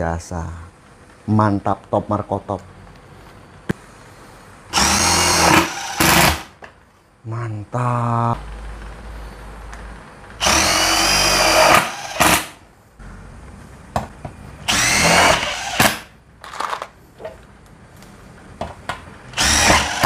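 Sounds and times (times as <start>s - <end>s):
impact driver running: 4.7s - 6.5s, 10.4s - 12.6s, 14.7s - 16.8s, 19.3s - 20.0s.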